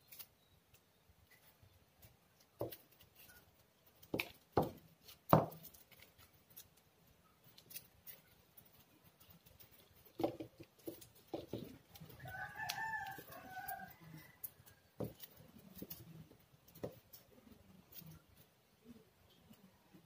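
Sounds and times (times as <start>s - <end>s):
rooster crowing: 12.1s - 14.8s.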